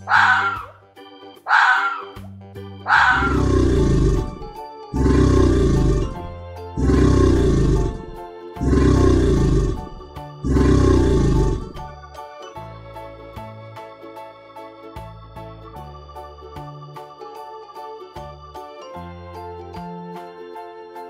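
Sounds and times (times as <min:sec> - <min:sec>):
crocodile growling: 0:02.9 - 0:11.9.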